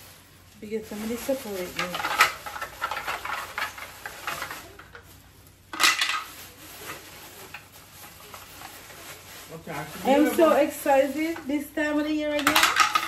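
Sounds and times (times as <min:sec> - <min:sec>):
plastic bag rustling and crinkling: 0:00.0 - 0:13.0.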